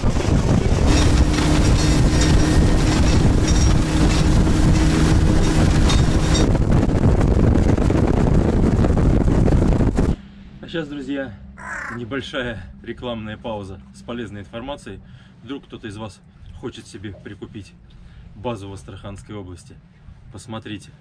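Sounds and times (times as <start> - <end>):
wind on microphone: 0.0 - 10.2
outboard motor running: 0.0 - 10.5
water rushing past hull: 0.0 - 10.6.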